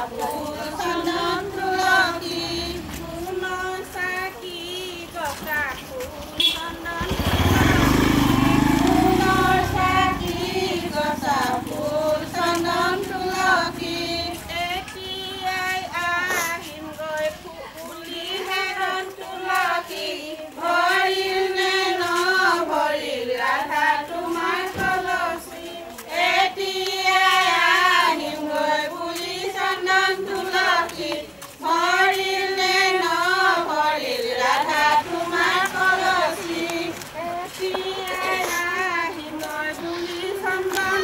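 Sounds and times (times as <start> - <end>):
women and girls singing together: 0.0 - 41.0
child singing: 9.2 - 41.0.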